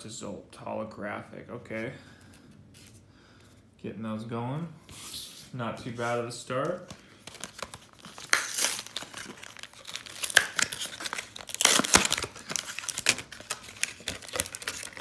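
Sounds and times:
plastic packaging crinkling and tearing: 7.2s - 15.0s.

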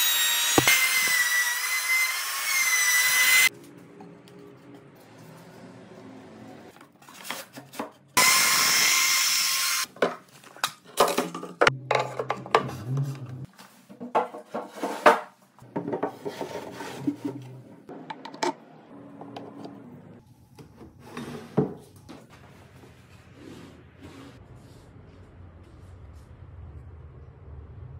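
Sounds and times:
power tool running: 0.0s - 3.5s, 8.2s - 9.9s.

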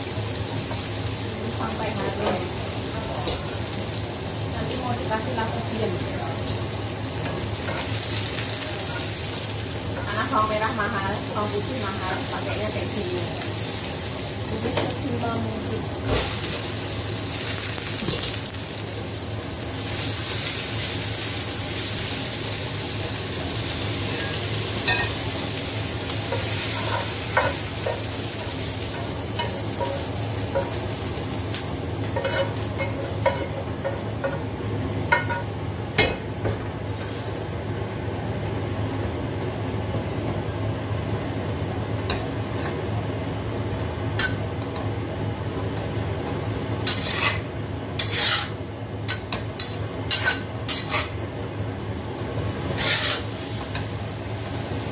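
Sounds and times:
vegetables sizzling in a wok: 0.0s - 38.8s, 39.4s - 54.9s
spatula scraping against wok: 46.8s - 51.2s, 52.6s - 53.4s.

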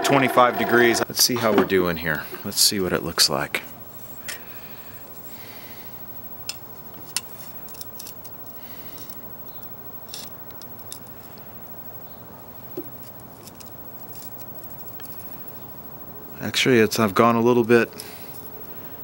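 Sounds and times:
low steady hiss: 1.0s - 19.0s.

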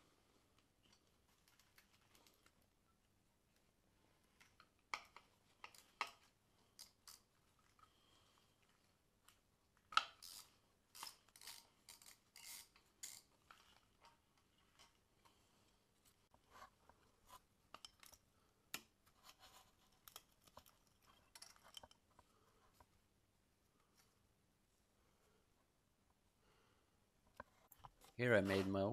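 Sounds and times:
hand tool clicking and scraping: 9.9s - 14.2s.

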